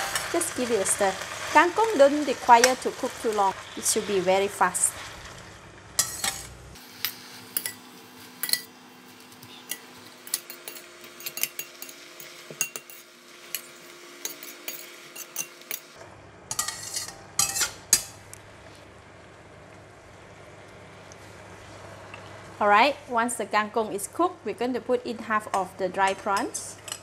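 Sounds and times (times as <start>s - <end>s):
metal spatula scraping in wok: 6.0s - 8.4s, 16.5s - 18.2s.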